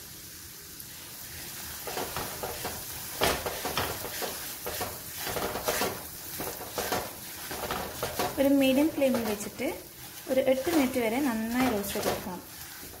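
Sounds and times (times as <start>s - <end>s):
semolina sizzling in ghee: 0.0s - 13.0s
spatula scraping pan: 1.3s - 13.0s.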